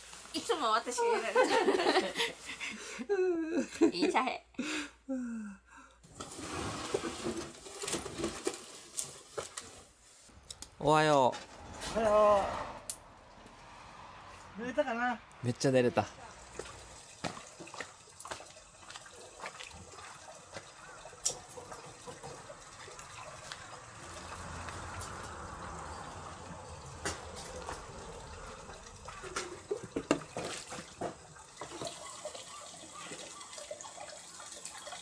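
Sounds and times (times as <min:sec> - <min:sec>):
water running: 0:15.5 - 0:35.0.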